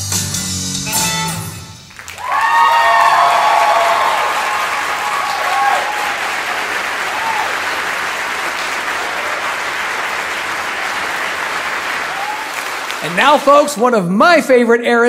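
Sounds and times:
audience applauding: 0:01.9 - 0:14.0
whoops and shouts: 0:02.2 - 0:06.2, 0:07.1 - 0:07.6, 0:12.1 - 0:12.6.

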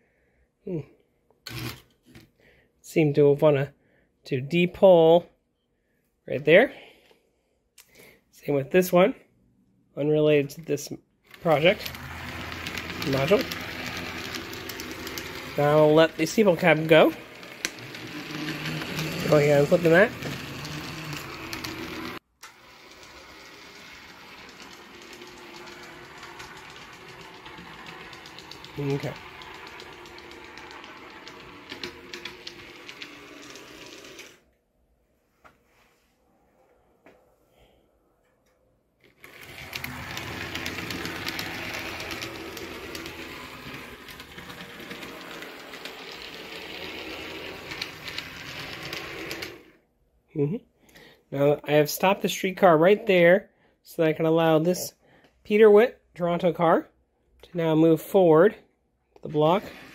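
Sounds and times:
small electric motor whirring: 0:11.3 - 0:34.4, 0:39.1 - 0:49.8
wheels clicking over rails: 0:11.3 - 0:34.4, 0:39.0 - 0:49.8, 0:59.3 - 0:59.9.

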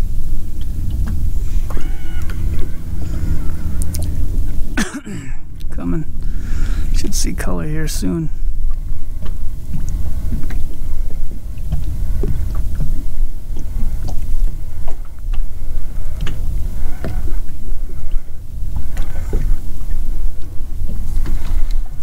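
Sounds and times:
water lapping against boat hull: 0:00.0 - 0:22.0.

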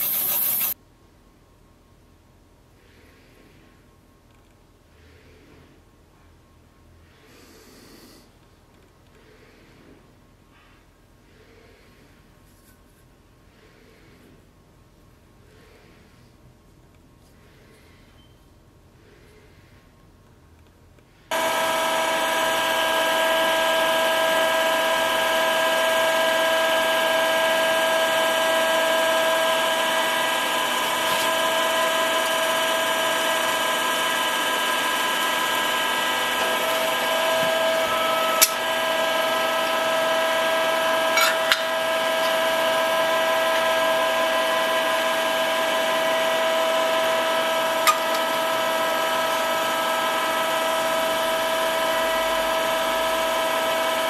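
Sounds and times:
hydraulic press motor whining hum: 0:21.3 - 0:54.0.

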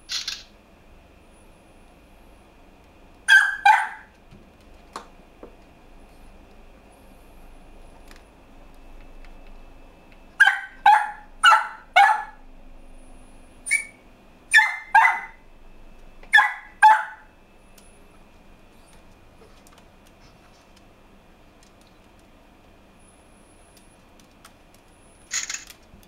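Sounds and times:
dog barking: 0:03.3 - 0:04.1, 0:10.4 - 0:12.4, 0:14.5 - 0:15.4, 0:16.3 - 0:17.3.

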